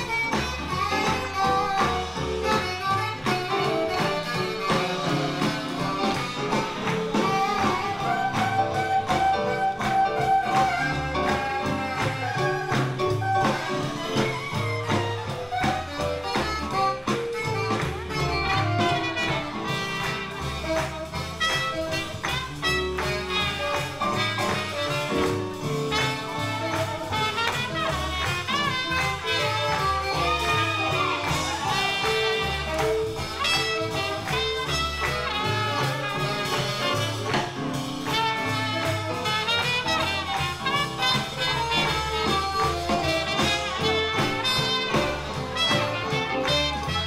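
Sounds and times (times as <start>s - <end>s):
swing band playing jazz: 0.0s - 47.0s.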